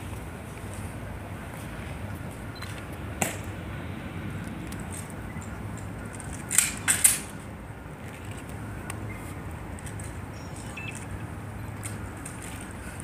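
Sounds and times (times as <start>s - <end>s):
rifle metallic clacks: 4.7s - 7.4s.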